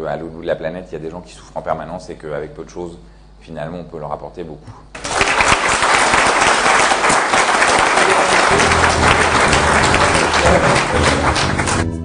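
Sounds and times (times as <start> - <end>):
audience applauding: 5.0 - 12.0
background music: 8.0 - 12.0.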